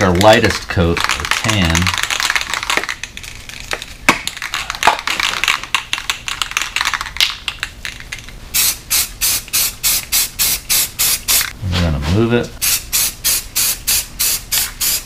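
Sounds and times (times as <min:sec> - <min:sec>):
spray paint can hissing: 0:08.6 - 0:11.5, 0:12.6 - 0:15.0.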